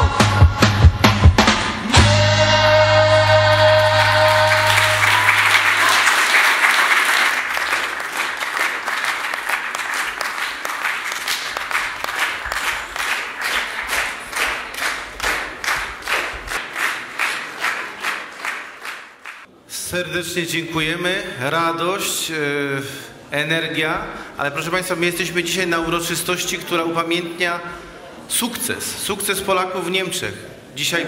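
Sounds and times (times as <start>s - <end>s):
rhythmic clapping in unison: 3.0s - 19.5s
audience applause: 3.2s - 19.5s.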